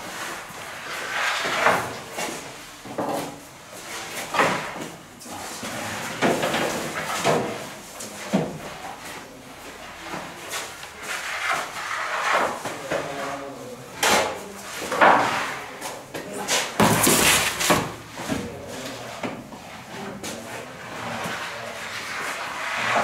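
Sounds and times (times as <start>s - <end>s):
metal pans clattering and scraping: 16.3s - 18.5s.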